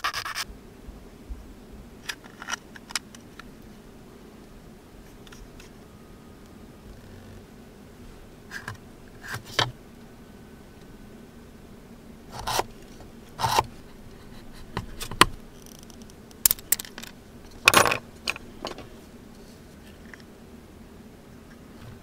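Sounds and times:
small tools clicking and scraping: 15.0 - 18.9.

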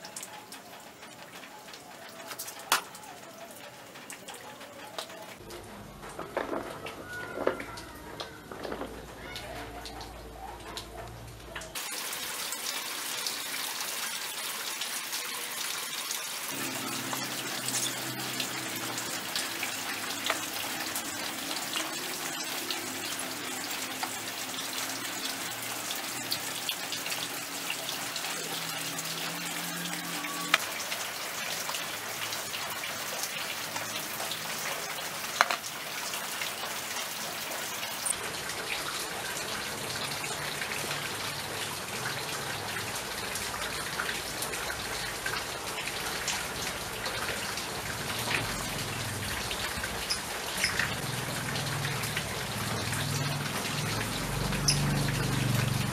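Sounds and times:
rain hissing: 11.6 - 55.9.

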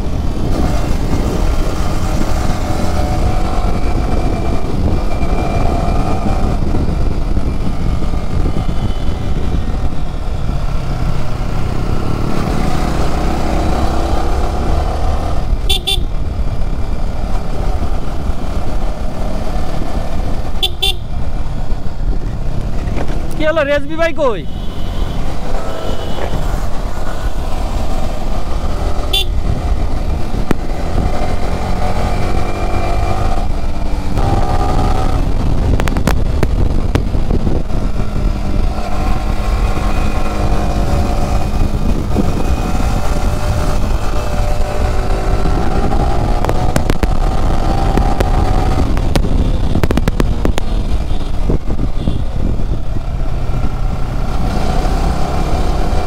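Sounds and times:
motorcycle engine accelerating: 0.0 - 23.8, 24.8 - 56.0
wind rumble on microphone: 0.0 - 24.2, 25.1 - 56.0.

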